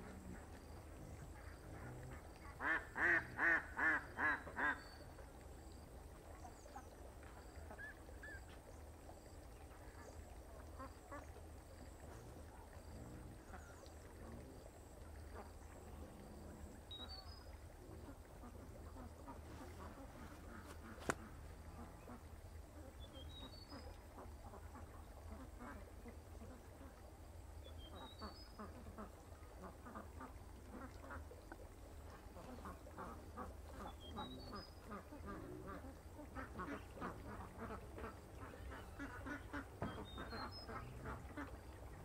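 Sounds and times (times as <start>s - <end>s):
duck quacking: 1.3s - 4.8s, 18.0s - 22.2s, 32.4s - 41.6s.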